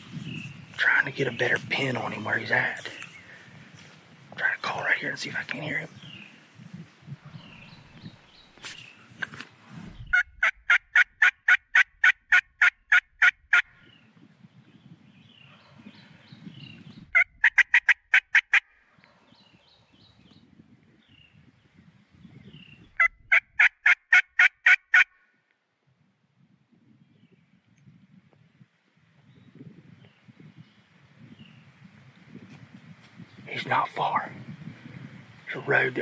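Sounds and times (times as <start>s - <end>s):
turkey call hen yelps: 10.1s - 13.7s, 17.2s - 18.6s, 23.0s - 25.1s.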